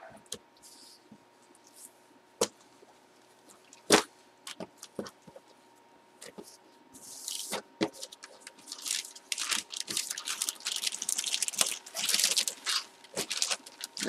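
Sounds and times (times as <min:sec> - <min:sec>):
plastic bag crinkling: 0:08.0 - 0:14.0.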